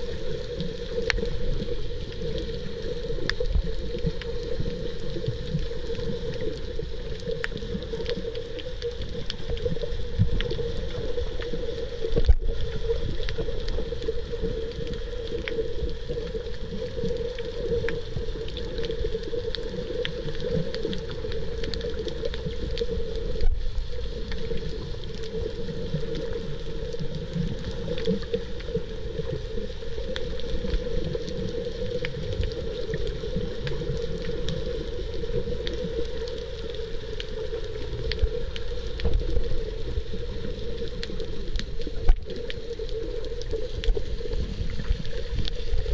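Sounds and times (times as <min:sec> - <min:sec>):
muffled underwater rumble: 0:00.0 - 0:45.9
faint clicks: 0:00.1 - 0:45.9.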